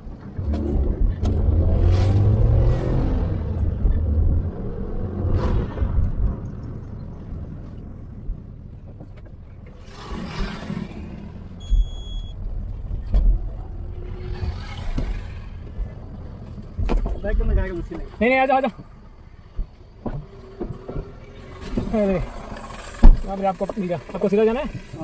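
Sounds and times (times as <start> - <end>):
passing traffic: 0.0 - 25.0
short high beep: 11.6 - 12.4.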